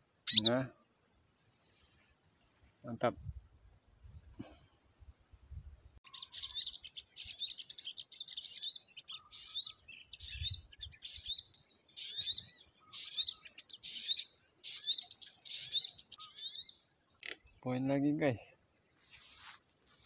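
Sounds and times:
bird twittering: 0.3s - 0.6s, 6.1s - 18.1s.

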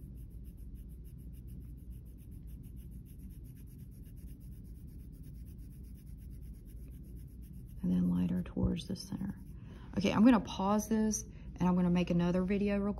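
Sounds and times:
pencil scratching on paper: 0.0s - 10.3s.

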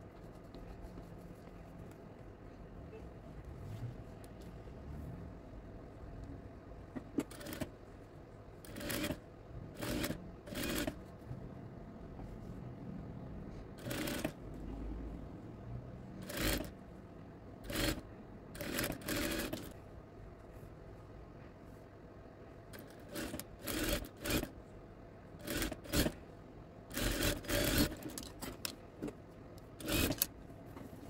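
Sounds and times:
faint motor hum: 0.0s - 31.0s
sewing machine stitching: 7.2s - 7.7s, 8.6s - 11.1s, 13.8s - 14.4s, 16.2s - 16.8s, 17.6s - 18.0s, 18.6s - 19.8s, 22.7s - 24.5s, 25.4s - 26.2s, 26.9s - 28.7s, 29.8s - 30.3s.

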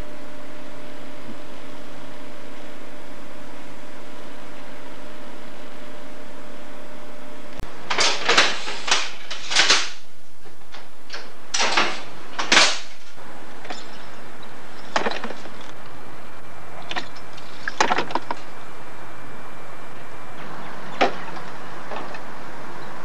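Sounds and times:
hum and hiss: 0.0s - 23.0s
signal lever frame clunking: 10.6s - 13.0s.

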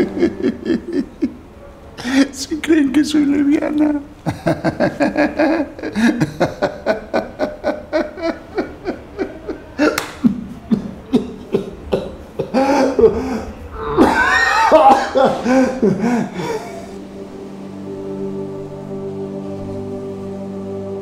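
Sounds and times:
man laughing hard: 0.0s - 2.4s, 4.2s - 17.0s.

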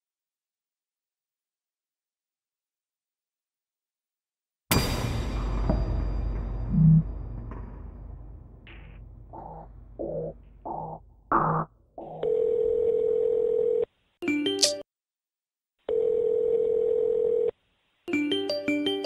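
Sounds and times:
telephone ringback beeps: 15.9s - 17.5s.

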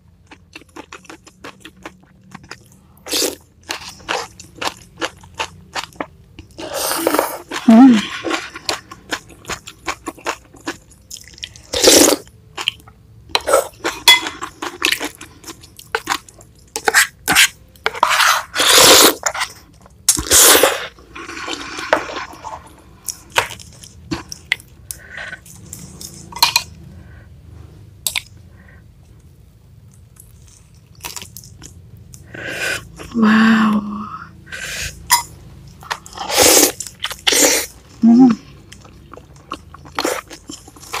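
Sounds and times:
slurping noodles: 16.8s - 19.5s, 36.0s - 37.7s.

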